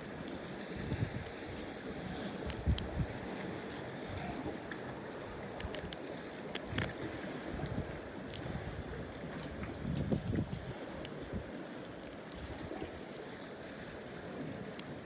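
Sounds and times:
wind on microphone: 0:00.7 - 0:03.4, 0:06.7 - 0:11.5.

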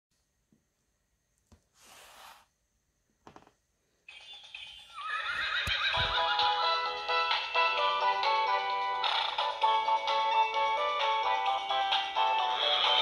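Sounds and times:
book rustling and knocking: 0:03.2 - 0:03.6
electronic horse whinny: 0:04.8 - 0:06.4.

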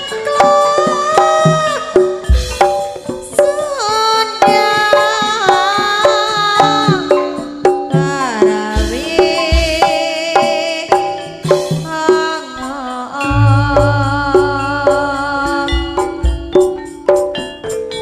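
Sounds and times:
live band playing: 0:00.0 - 0:18.0
sliding melody line: 0:13.2 - 0:15.6
hand drum strokes: 0:13.2 - 0:16.6
deep bass drum thump: 0:13.3 - 0:15.1.

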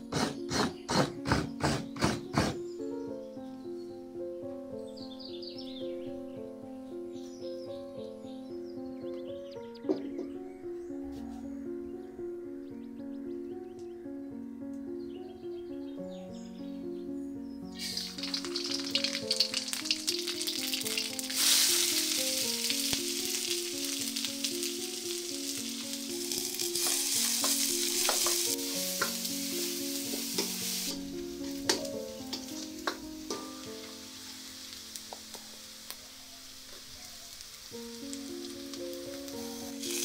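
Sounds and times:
food frying in hot oil: 0:17.8 - 0:31.0, 0:39.7 - 0:40.0.

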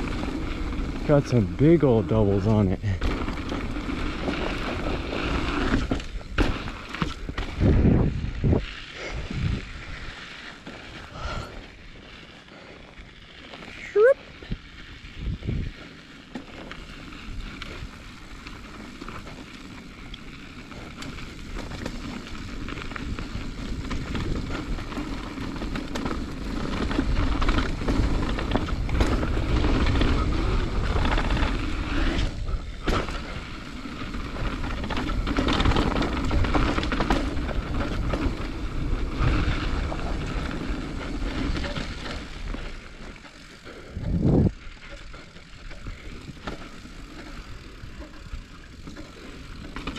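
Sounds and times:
bike rattle: 0:00.0 - 0:49.9
bike tyres rolling over dirt: 0:00.0 - 0:49.9
wind on microphone: 0:07.3 - 0:10.0, 0:15.2 - 0:15.8, 0:43.9 - 0:44.6.

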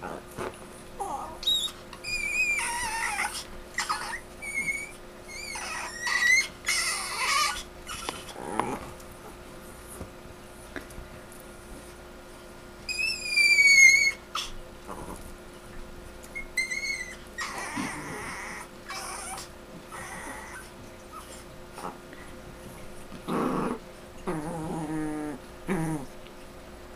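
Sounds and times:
dog growling: 0:00.0 - 0:09.4, 0:13.2 - 0:15.3, 0:16.6 - 0:22.2, 0:23.2 - 0:26.2
dog screeching: 0:01.0 - 0:08.4, 0:12.9 - 0:14.6, 0:16.4 - 0:21.4.

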